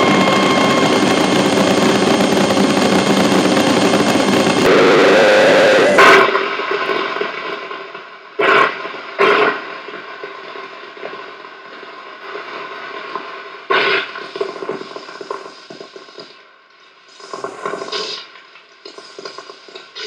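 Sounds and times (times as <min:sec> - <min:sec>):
ambient electronic droning tones: 0:00.0 - 0:06.0.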